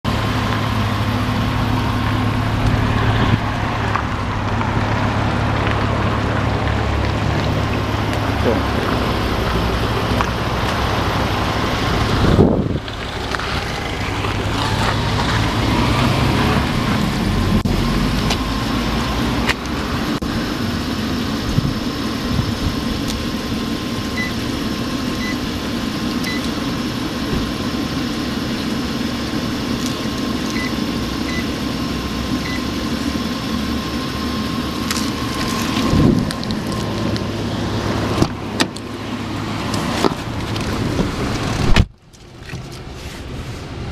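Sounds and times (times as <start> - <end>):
car engine idling: 0.0 - 43.9
short electronic beeps: 26.2 - 26.4, 30.6 - 31.5, 32.4 - 32.7.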